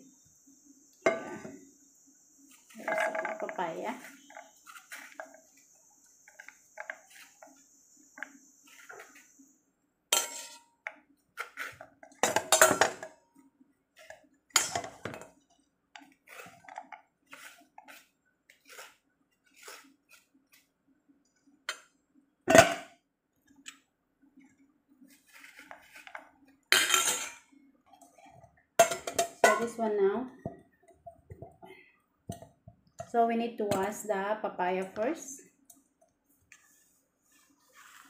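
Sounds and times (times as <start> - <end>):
metal spoon scraping fruit: 2.5 - 5.6, 10.2 - 10.7.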